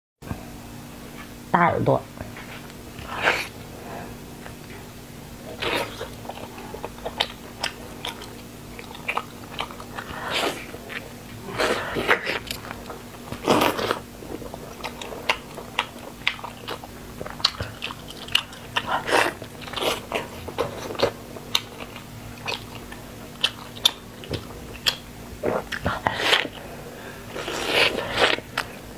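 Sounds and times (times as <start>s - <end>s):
chewing with sharp crunches: 5.4s - 26.6s.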